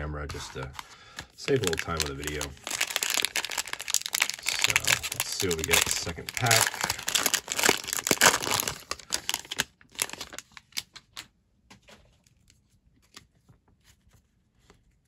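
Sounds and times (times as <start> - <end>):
plastic wrapper crinkling and tearing: 1.4 - 11.3.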